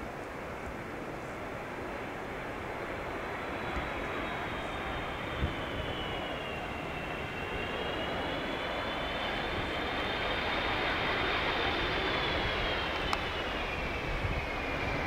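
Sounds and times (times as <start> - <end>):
jet engines rushing and whining: 0.0 - 15.0.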